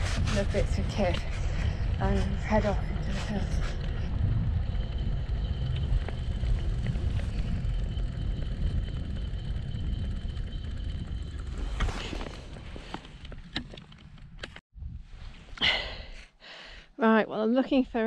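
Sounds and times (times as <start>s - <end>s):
bike road and wind rumble: 0.0s - 16.2s
wheels clattering over cattle grid: 0.3s - 14.4s.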